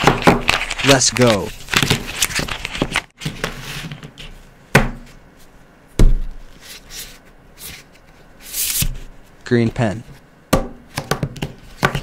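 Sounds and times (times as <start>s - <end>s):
pens knocking on table: 10.6s - 12.0s.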